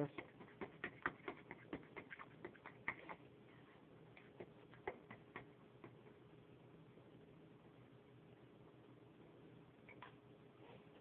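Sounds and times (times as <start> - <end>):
fork whisking batter in bowl: 0.0 - 3.3.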